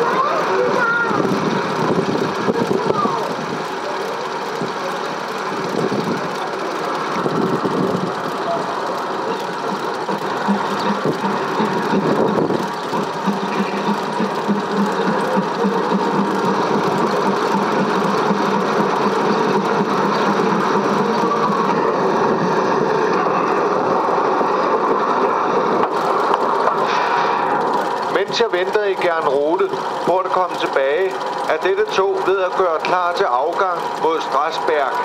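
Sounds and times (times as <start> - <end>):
machine running with fine rattle: 0.0 - 35.0
low hum: 5.3 - 33.0.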